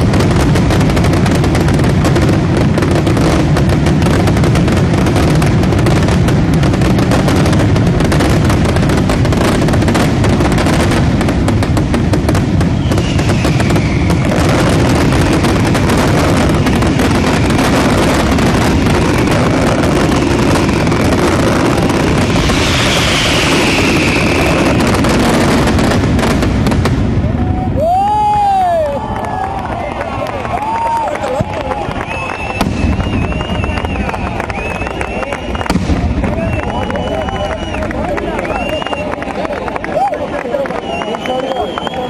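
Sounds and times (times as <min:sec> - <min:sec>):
fireworks crackling and banging: 0:00.0 - 0:42.0
whistles falling in pitch: 0:12.8 - 0:14.3, 0:22.6 - 0:24.8, 0:31.9 - 0:39.2, 0:40.6 - 0:42.0.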